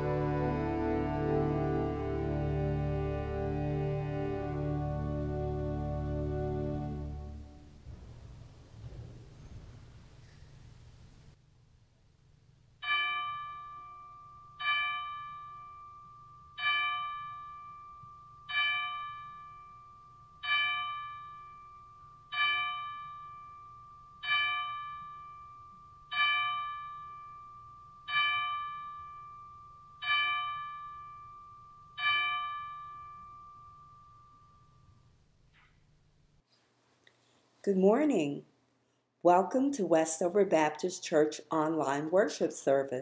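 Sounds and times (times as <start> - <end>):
bell tolling: 12.8 - 35.2.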